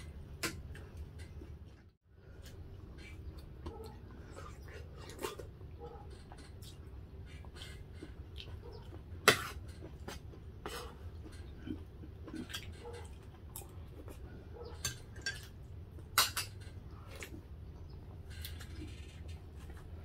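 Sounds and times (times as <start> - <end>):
low steady hum: 0.0 - 20.0
cutlery clinking on plates: 14.7 - 16.8.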